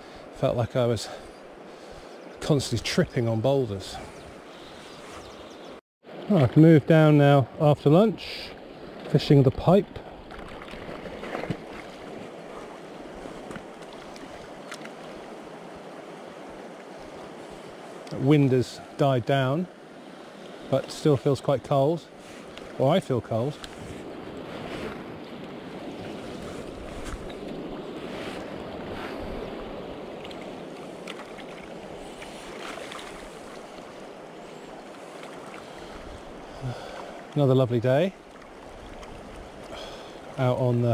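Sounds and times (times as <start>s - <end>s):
river flowing: 22.0s - 40.8s
wind on microphone: 23.6s - 30.7s.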